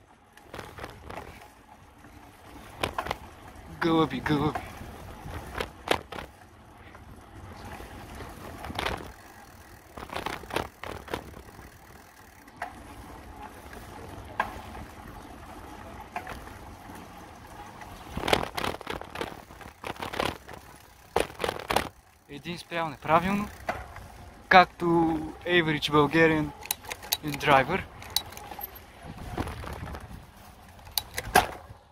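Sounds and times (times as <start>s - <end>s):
bicycle rattling over bumps: 0.0s - 31.9s
wind on microphone: 29.0s - 30.4s.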